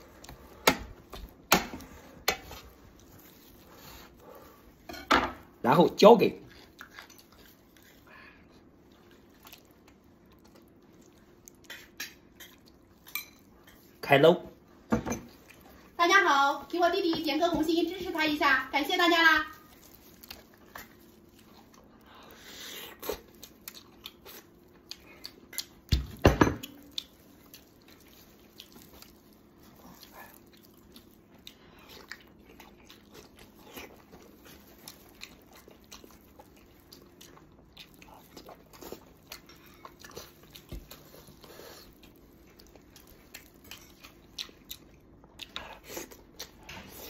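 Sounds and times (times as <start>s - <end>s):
wet chewing and smacking: 0.0s - 4.9s, 5.8s - 14.0s, 15.3s - 16.0s, 19.5s - 47.0s
meat tearing: 19.6s - 22.0s.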